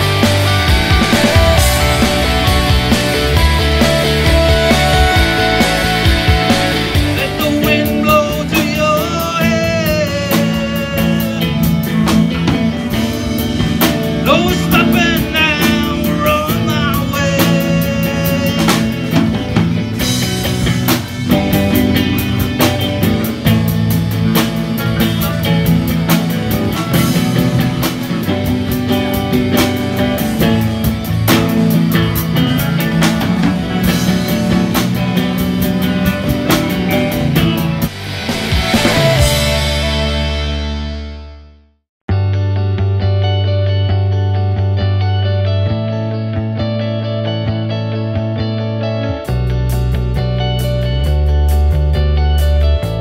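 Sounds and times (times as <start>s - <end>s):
person singing: 0.0s - 12.4s, 14.2s - 19.6s
drum kit: 0.0s - 43.9s, 47.4s - 53.0s
bass guitar: 0.0s - 53.0s
electric guitars: 0.0s - 53.0s.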